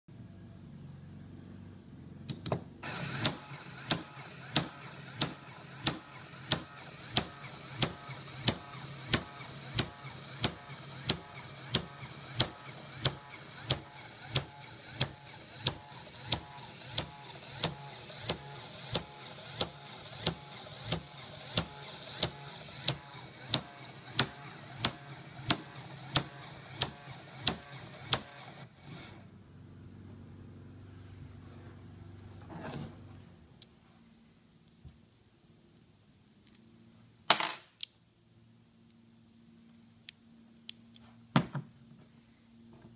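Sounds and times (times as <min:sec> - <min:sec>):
sharp mechanical clack: 0:02.8 - 0:29.1
electric motor and gears whirring: 0:02.8 - 0:29.3.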